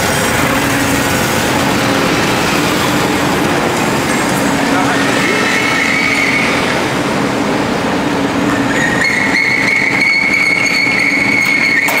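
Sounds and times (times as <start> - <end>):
roasting machine drone: 0.0 - 12.0.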